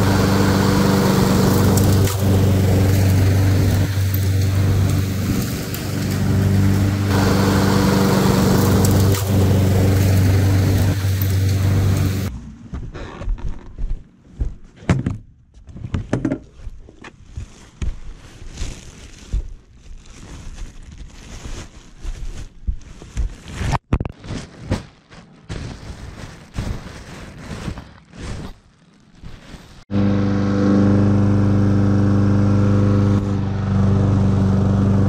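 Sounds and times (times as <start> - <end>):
rustling: 16.4 - 29.8.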